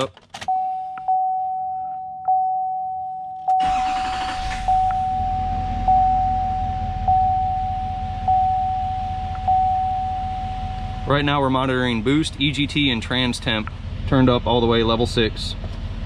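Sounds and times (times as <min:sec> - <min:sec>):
pulsed warning chime: 0:00.5 - 0:11.6
diesel engine starting and idling: 0:03.5 - 0:16.0.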